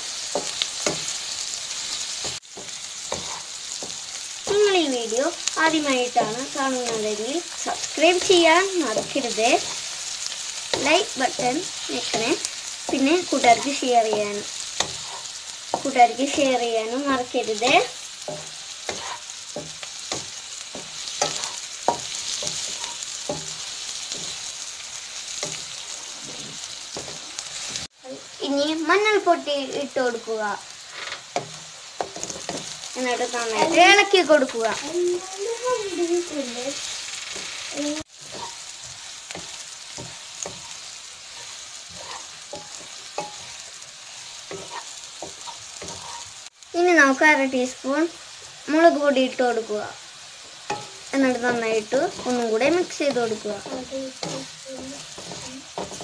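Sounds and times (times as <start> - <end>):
onions sizzling in oil: 0.0 - 56.0
wooden spatula scraping pan: 2.0 - 4.7, 6.0 - 16.6, 17.2 - 24.6, 25.2 - 27.9, 34.6 - 46.4, 50.7 - 56.0.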